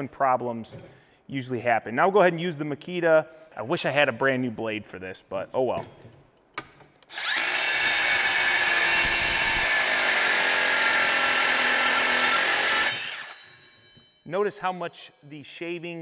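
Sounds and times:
circular saw cutting steel: 0:07.1 - 0:14.1.

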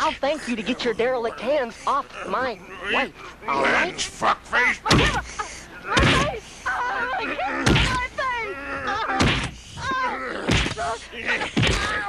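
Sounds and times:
voices groaning and yelling: 0:00.0 - 0:12.0
heavy thuds of blows: 0:05.9 - 0:06.4, 0:07.6 - 0:08.1, 0:09.1 - 0:12.0.

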